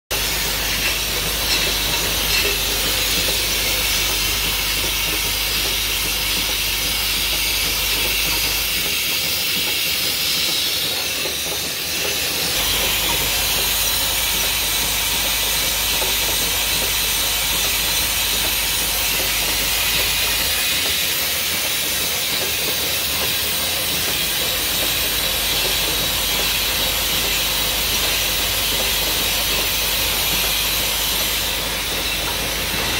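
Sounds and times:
capping machine hissing: 0:00.1 - 0:32.9.

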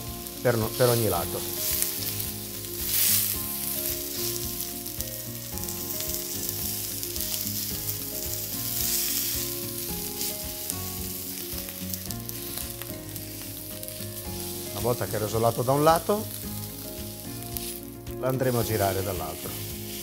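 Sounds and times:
steak sizzling in skillet: 0:00.0 - 0:20.0.

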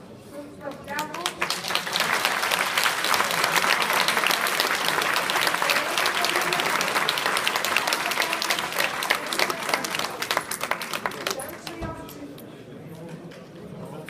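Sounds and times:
audience applauding: 0:01.0 - 0:11.8.

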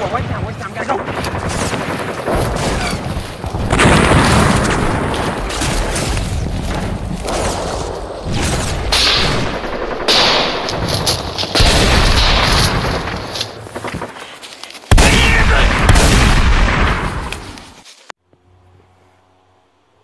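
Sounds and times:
explosions booming: 0:00.0 - 0:10.9, 0:14.9 - 0:17.3.

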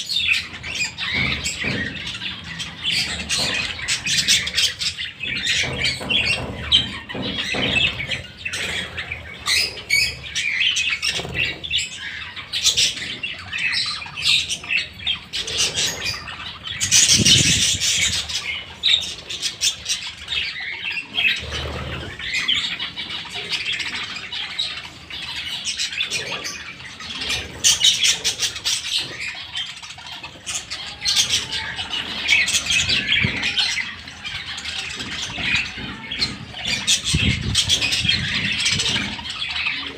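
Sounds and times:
budgerigars chattering and squawking: 0:00.0 - 0:39.9.

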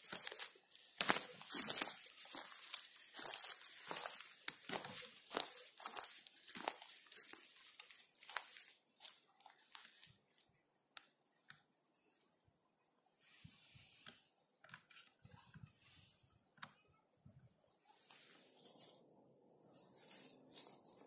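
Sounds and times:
footsteps on pine needles and twigs: 0:00.0 - 0:10.4, 0:18.1 - 0:21.0.

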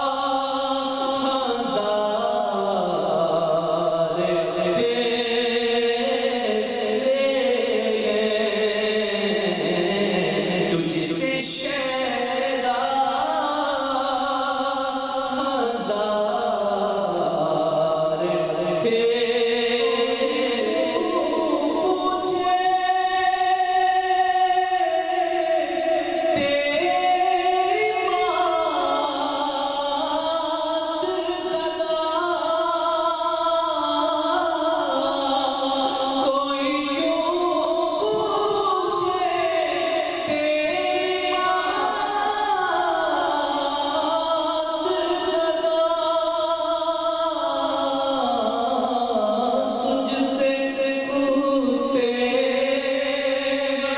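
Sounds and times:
man singing unaccompanied: 0:00.0 - 0:53.9.

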